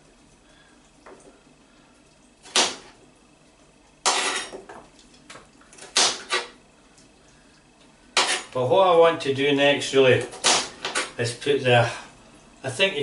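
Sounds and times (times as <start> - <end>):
knife chopping on board: 2.5 - 2.9, 5.9 - 6.5, 10.3 - 11.1.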